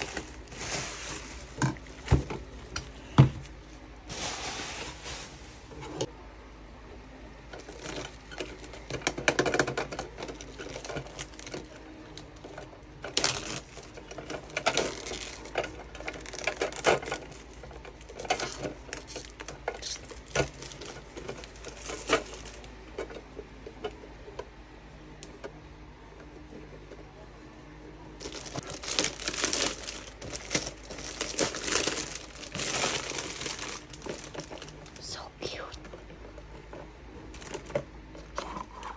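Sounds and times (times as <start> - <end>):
plastic wrapping crinkling: 0.0 - 5.8, 7.6 - 22.7, 28.2 - 35.0.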